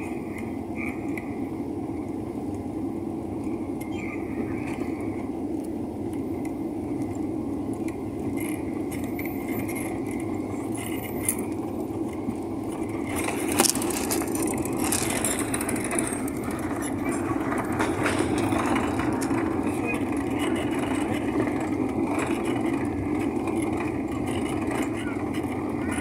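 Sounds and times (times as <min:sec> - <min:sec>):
airliner engine rumble in cabin: 0:00.0 - 0:26.0
hiss and rattling: 0:12.2 - 0:25.2.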